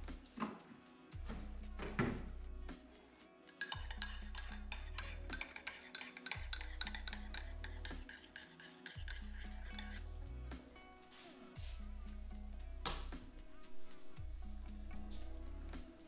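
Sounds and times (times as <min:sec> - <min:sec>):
teaspoon clinking in ceramic mug: 0:03.5 - 0:10.0.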